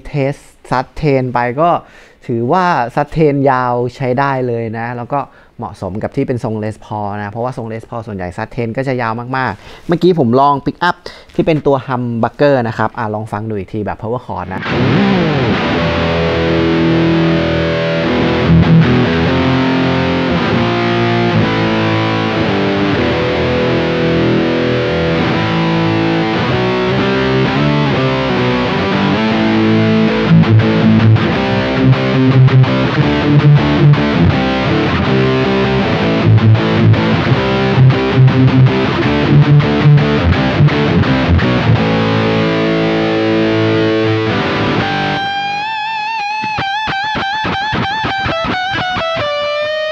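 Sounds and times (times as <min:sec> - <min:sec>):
distorted electric guitar chords: 0:14.5 - 0:49.9.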